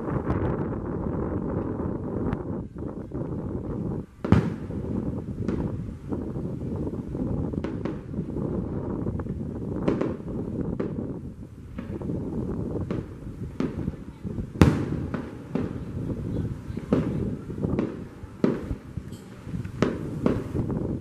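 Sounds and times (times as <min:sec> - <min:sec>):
fireworks shells bursting: 0:04.2 - 0:05.8, 0:12.8 - 0:21.0.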